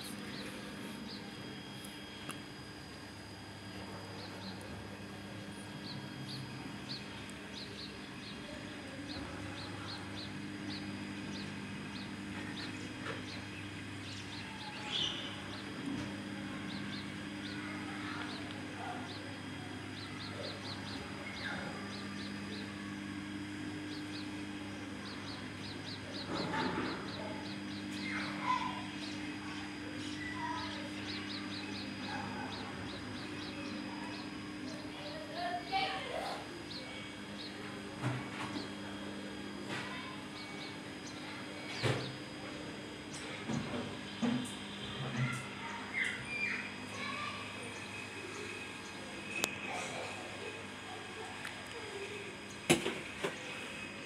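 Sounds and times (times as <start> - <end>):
washing machine humming: 0.0 - 54.0
small bird chirping: 5.6 - 22.8, 23.8 - 24.4, 25.0 - 37.6, 45.2 - 50.3.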